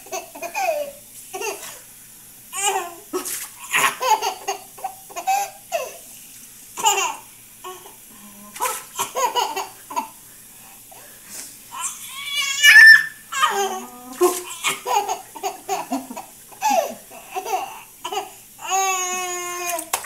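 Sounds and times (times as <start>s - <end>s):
toddler laughing and babbling: 0.0s - 1.8s, 11.7s - 19.9s.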